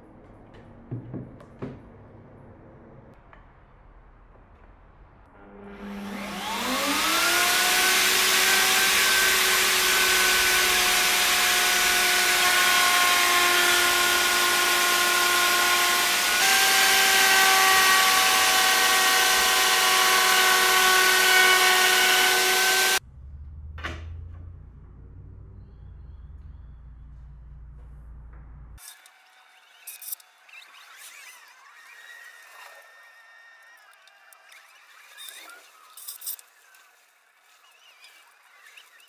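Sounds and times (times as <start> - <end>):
circular saw whining: 5.3 - 23.0, 28.8 - 37.0.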